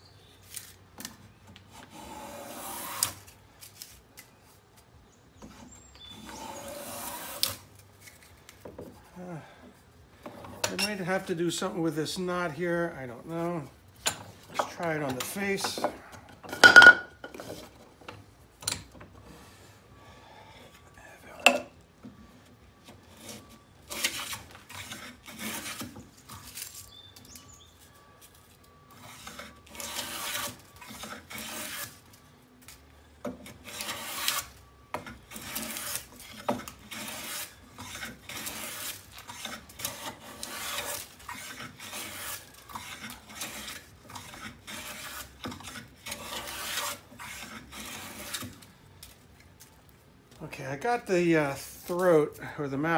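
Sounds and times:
hand plane swishing on wood: 35.3 - 48.5.

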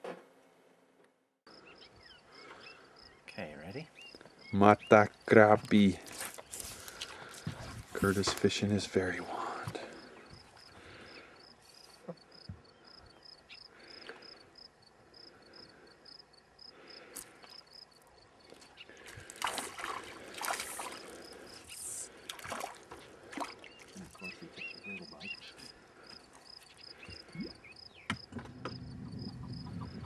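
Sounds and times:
fish splashing at water surface: 19.0 - 24.0.

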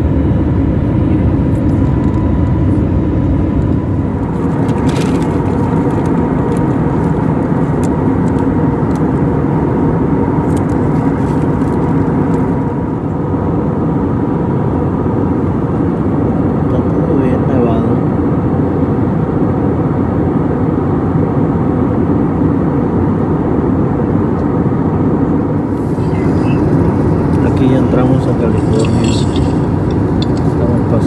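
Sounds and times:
airliner cabin engine rumble: 0.0 - 31.0
thin steady whine: 25.0 - 31.0.

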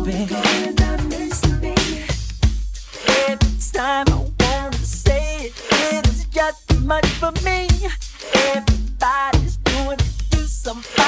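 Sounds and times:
deep bass: 0.0 - 2.7, 3.6 - 5.4, 6.1 - 8.0
drum kick and snare: 0.0 - 11.0.

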